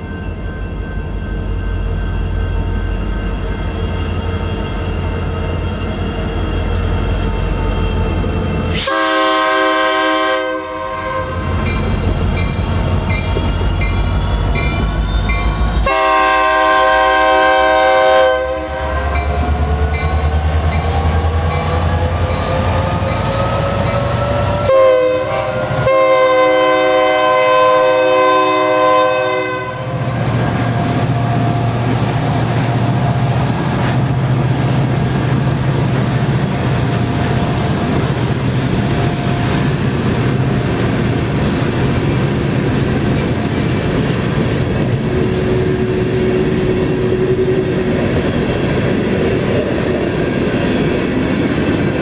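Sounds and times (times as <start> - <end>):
locomotive drone: 0.0 - 52.0
locomotive horn: 8.8 - 11.6, 15.2 - 19.4, 24.7 - 30.2
freight cars rumbling: 18.6 - 24.7, 29.8 - 52.0.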